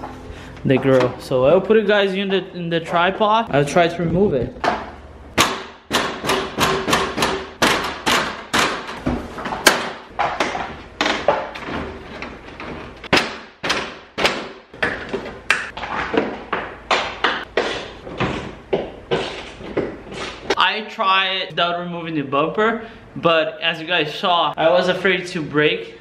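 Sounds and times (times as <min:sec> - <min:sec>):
plastic grille knocking and thumping: 0:04.6 - 0:17.5.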